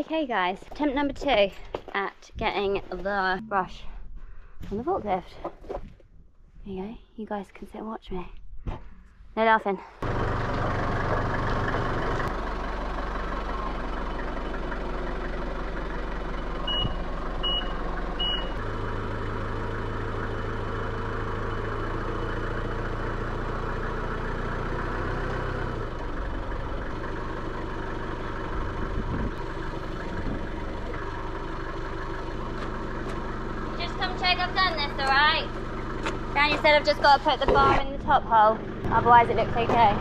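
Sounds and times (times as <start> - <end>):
forklift engine running: 10.0 - 40.0
reversing alarm beeps: 16.6 - 18.6.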